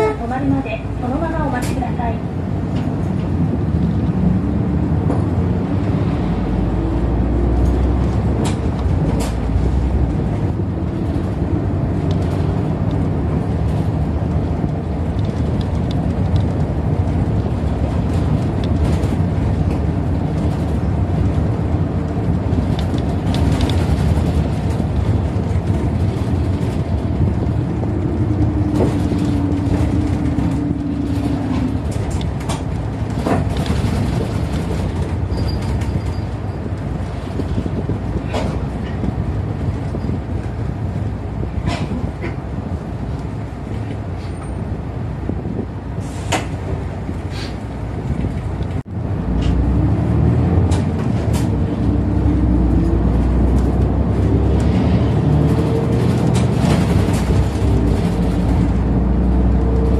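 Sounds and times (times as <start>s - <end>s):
bus engine and road noise: 0.0s - 59.9s
rattles and clicks: 7.6s - 41.0s, 55.6s - 58.8s.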